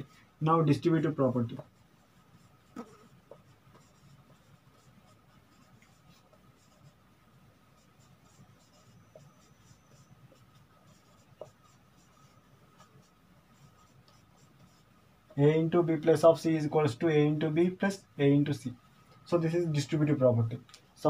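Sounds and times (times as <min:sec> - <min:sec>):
marker pen on whiteboard: 0:00.0 - 0:18.1
faint high whine: 0:06.6 - 0:14.4.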